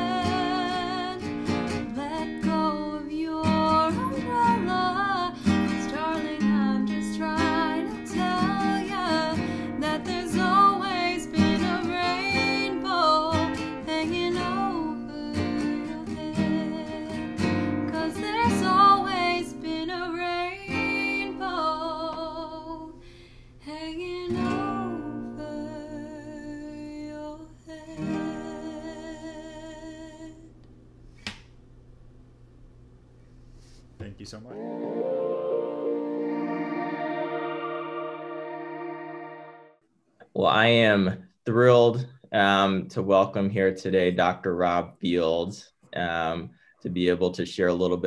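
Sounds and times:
woman singing with vibrato: 0.0 - 1.2, 2.0 - 17.2, 17.9 - 23.0, 23.7 - 30.4
small click: 30.6 - 31.6.

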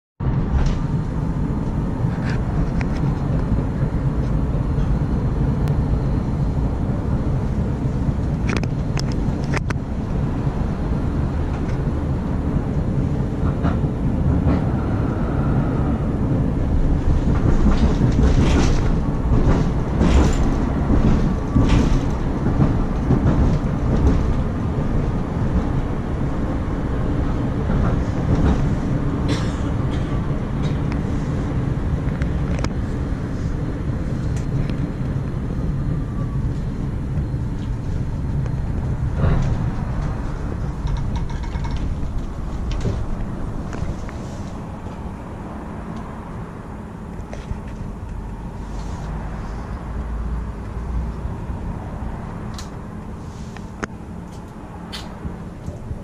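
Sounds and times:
tram rumble: 0.2 - 56.0
rail clatter and knocks: 17.0 - 25.1, 38.8 - 44.2.

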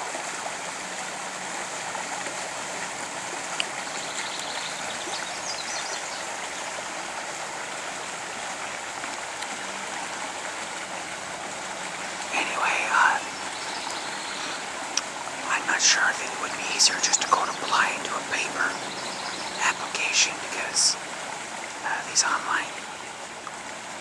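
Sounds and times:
creek running over riffles: 0.0 - 24.0
bird chirps: 16.8 - 20.2.

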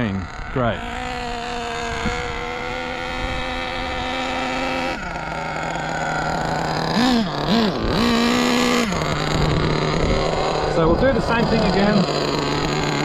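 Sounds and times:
nitro engine revving and idling: 0.0 - 13.0.

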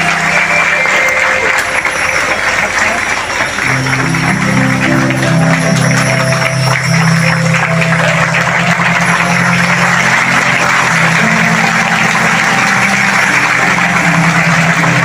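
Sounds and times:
crowd applause: 0.0 - 15.0.

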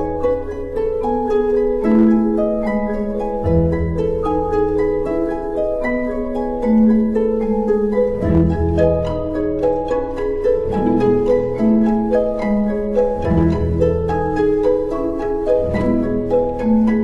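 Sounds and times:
plucked harp and pizzicato strings: 0.0 - 17.0
long held low notes: 7.6 - 17.0.

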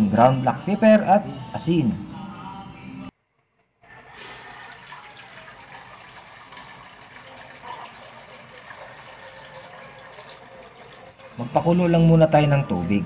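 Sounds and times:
water pouring into metal pot: 4.0 - 11.8.

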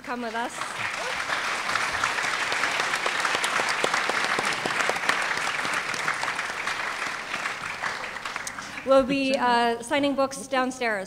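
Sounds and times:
audience applauding: 0.3 - 9.0.

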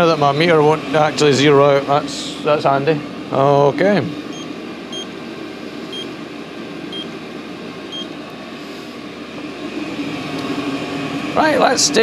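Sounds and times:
air heater fan and burner rushing: 0.0 - 12.0.

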